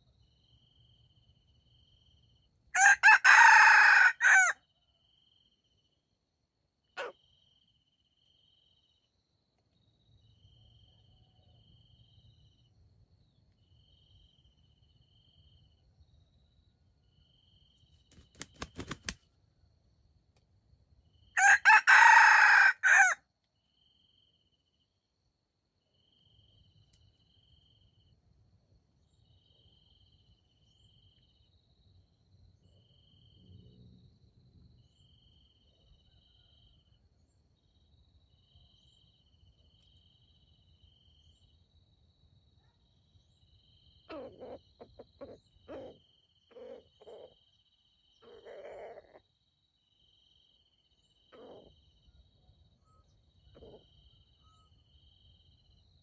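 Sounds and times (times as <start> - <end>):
rooster crowing: 2.8 - 4.6, 21.4 - 23.2
quick run of clicks: 18.1 - 19.2
faint chirps: 34.8 - 56.0.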